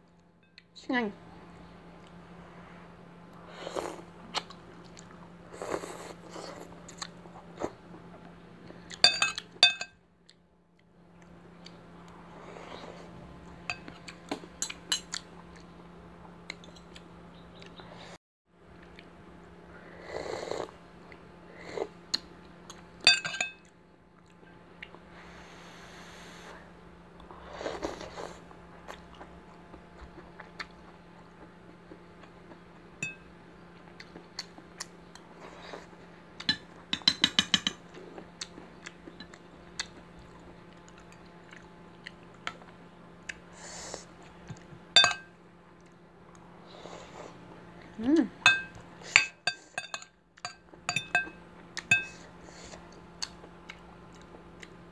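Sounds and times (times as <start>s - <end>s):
faint steady hum: 0.0s - 54.9s
person chewing: 3.6s - 8.1s, 27.3s - 32.6s, 37.9s - 44.8s, 51.6s - 54.8s
cutlery clinking on ceramic dishes: 9.0s - 10.0s, 23.1s - 23.7s, 36.5s - 37.8s, 45.0s - 45.3s, 48.5s - 52.2s.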